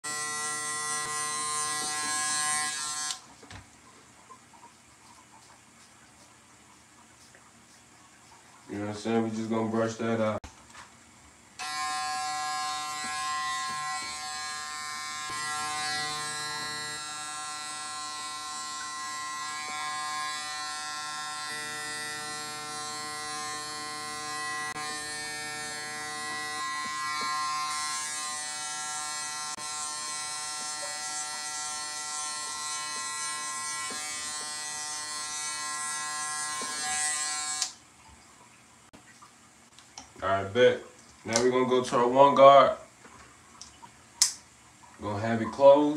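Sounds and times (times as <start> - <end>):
electric hair clippers buzzing: 0.0 - 3.3, 11.6 - 37.8.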